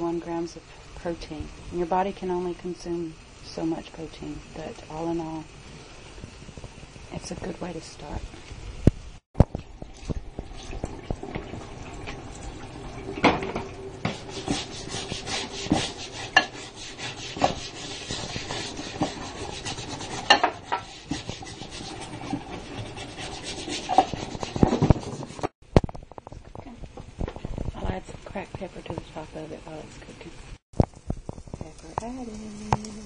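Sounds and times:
tap water running into sink: 9.4s - 16.7s
hand scrubbing board: 14.0s - 25.6s.

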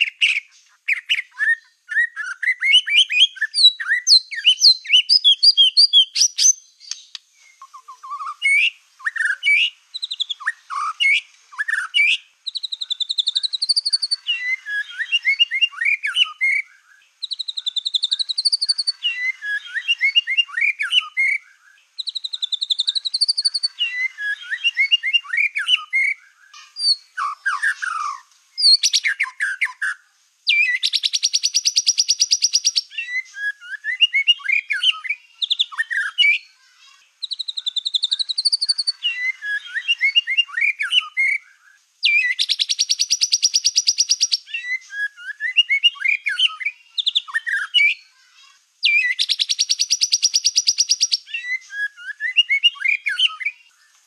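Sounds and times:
fast buzzing bird trill: 0.0s - 16.6s, 30.5s - 33.2s, 42.0s - 44.8s, 48.8s - 51.6s
songbird chirps and whistles: 0.0s - 54.0s.

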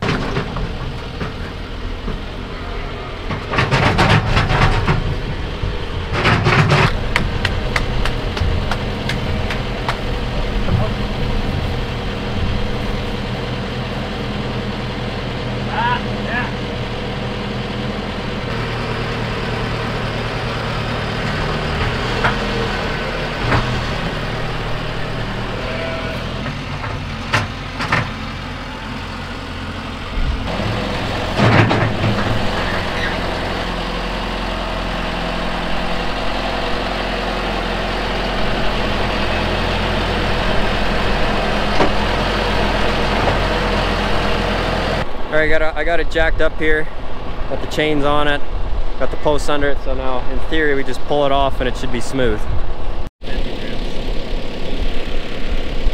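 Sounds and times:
knocks and clanks: 0.0s - 2.4s, 3.2s - 11.9s, 21.2s - 25.5s, 26.2s - 28.5s, 30.1s - 33.7s, 41.0s - 43.6s
tractor engine idling: 0.0s - 52.3s, 53.2s - 55.9s.

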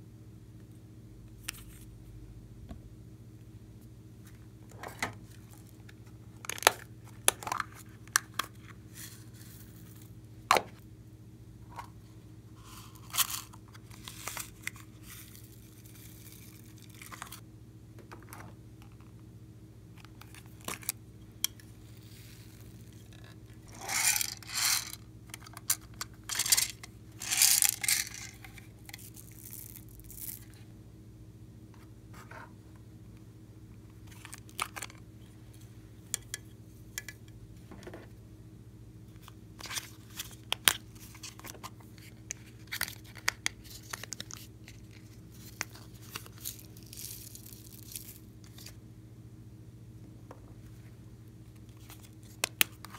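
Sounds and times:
rustling pours: 23.6s - 30.6s, 43.0s - 48.8s.

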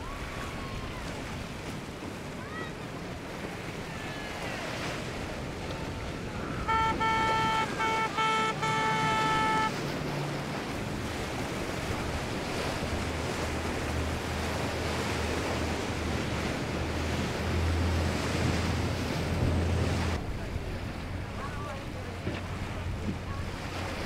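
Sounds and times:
boat engine drone: 0.0s - 24.0s
waves and hull spray: 0.0s - 24.0s
boat horn toots: 4.3s - 20.2s.

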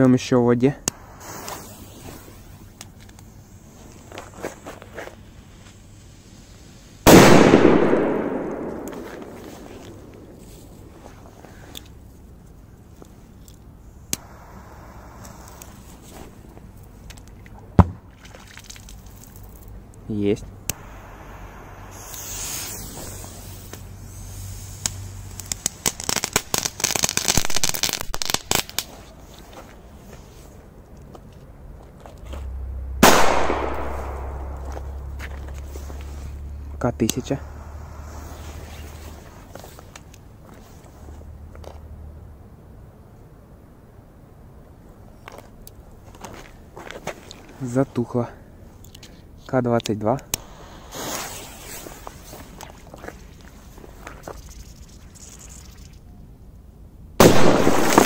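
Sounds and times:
firecracker fuse hissing: 0.8s - 11.8s, 13.8s - 16.7s, 20.7s - 30.6s, 33.7s - 41.0s, 50.4s - 56.0s, 57.2s - 58.0s
firecracker crackling pops: 0.8s - 12.0s, 14.0s - 18.0s, 20.6s - 29.7s, 33.0s - 36.4s, 37.0s - 40.3s, 50.3s - 56.0s, 57.2s - 58.0s.

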